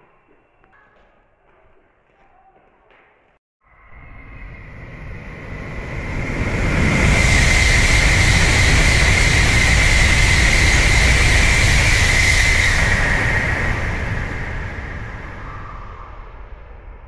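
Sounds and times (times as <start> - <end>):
high whine: 3.6 - 17.0
train passing at speed: 3.7 - 17.0.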